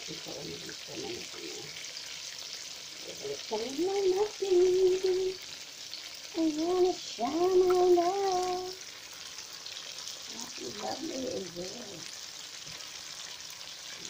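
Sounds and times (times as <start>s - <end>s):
oil sizzling: 0.0s - 14.0s
person humming: 3.1s - 5.4s, 6.4s - 8.8s.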